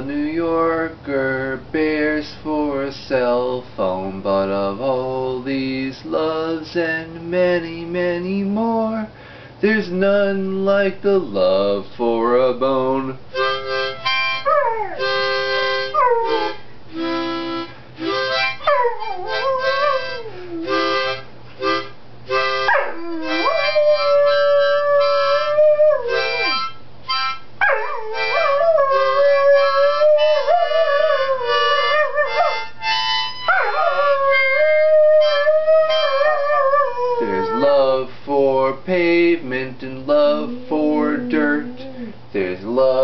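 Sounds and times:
harmonica chords: 13.3s - 38.0s, 38.9s - 42.6s
dog howling: 14.4s - 15.0s, 18.6s - 20.9s, 22.7s - 26.5s, 27.6s - 32.6s, 33.4s - 37.9s, 40.1s - 42.2s.

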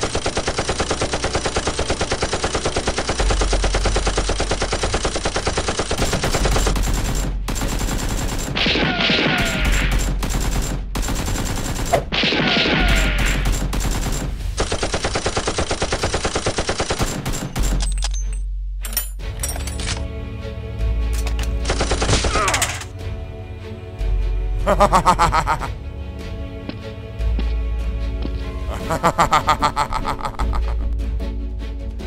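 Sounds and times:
rapid automatic gunfire: 0.0s - 17.8s.

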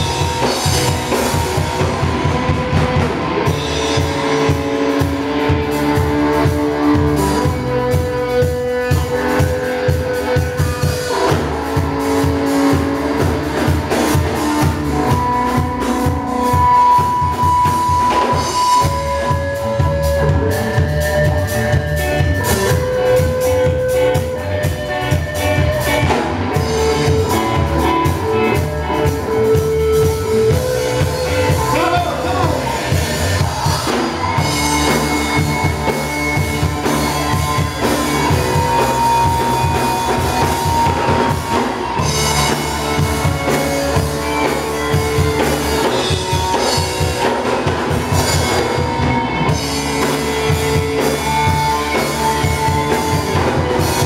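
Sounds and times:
bass guitar: 0.0s - 54.0s
drum kit beat: 0.0s - 54.0s
electric guitars sustained notes: 0.0s - 54.0s.

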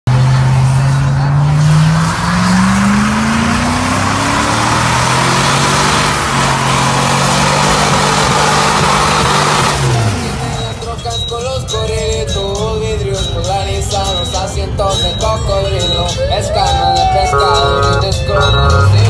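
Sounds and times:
engine at high revs: 0.1s - 10.8s, 17.3s - 19.0s
tyres squealing: 15.1s - 19.0s.

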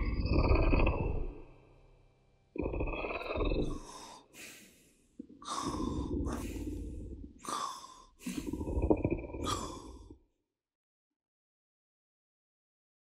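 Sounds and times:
heavy breathing snore: 2.6s - 10.1s.

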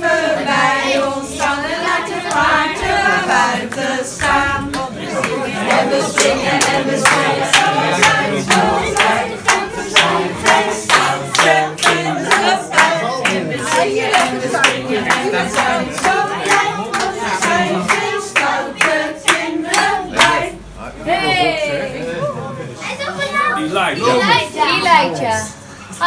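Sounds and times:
group of people singing: 0.0s - 22.2s
people clapping in time: 0.9s - 20.5s.

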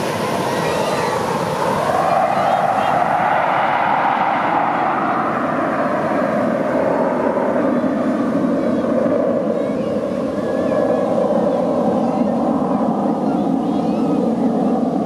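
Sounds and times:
jets flying low overhead: 0.0s - 15.0s.

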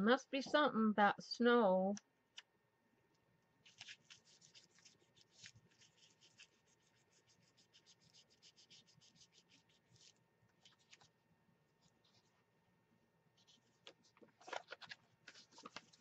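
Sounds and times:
fingertips rubbing sticker on paper: 3.6s - 11.1s.

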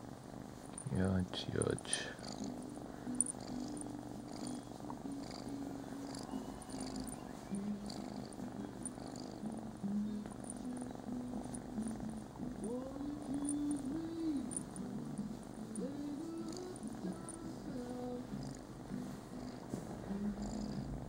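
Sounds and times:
kitten purring: 0.0s - 21.0s.

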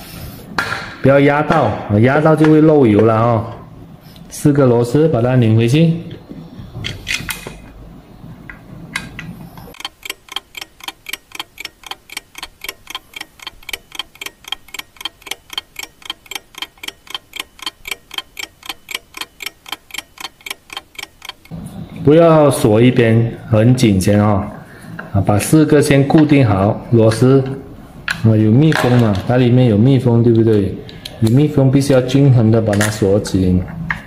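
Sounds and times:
clock ticking: 9.7s - 21.6s.

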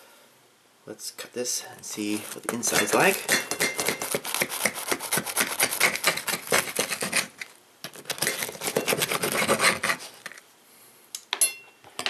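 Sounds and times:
knife sawing through crisp crust: 2.6s - 7.5s, 8.2s - 10.3s.

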